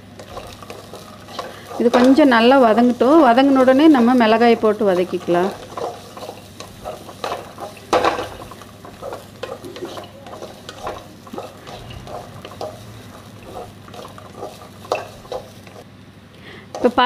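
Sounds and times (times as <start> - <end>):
wooden spatula scraping metal pan: 0.0 - 15.8
vegetables sizzling: 0.0 - 15.9, 16.5 - 17.0.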